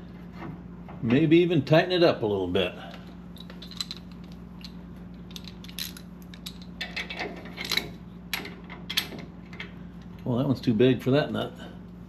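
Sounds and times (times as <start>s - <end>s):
steady low hum: 0.0s - 12.0s
wrenches clinking: 3.4s - 8.0s.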